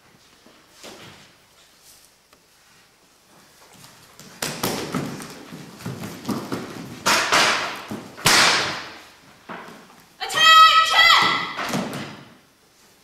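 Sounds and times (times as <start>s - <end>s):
bare feet stamping on wooden floor: 3.8s - 9.9s.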